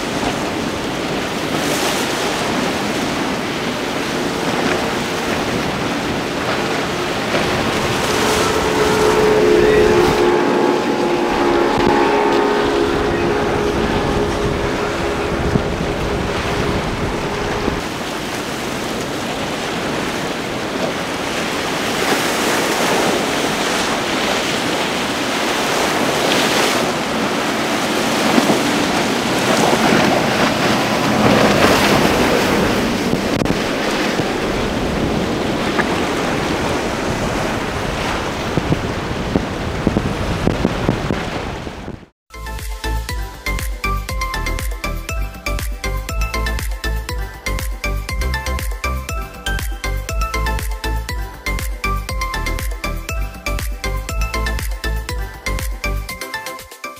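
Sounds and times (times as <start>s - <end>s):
outboard motor drone: 0.0s - 38.2s
wind buffeting microphone: 0.0s - 42.1s
waves rushing and splashing: 0.0s - 56.9s.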